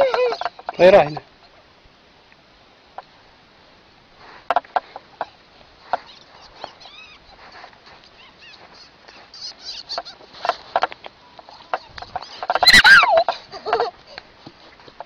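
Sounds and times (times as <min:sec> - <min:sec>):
high-pitched animal squeaks: 0:06.0 - 0:10.8, 0:11.4 - 0:13.9.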